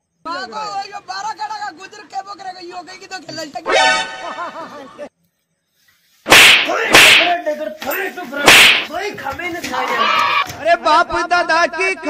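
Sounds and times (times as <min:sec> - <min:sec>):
whip-crack slap effects: 0:06.3 - 0:07.4, 0:08.4 - 0:08.9.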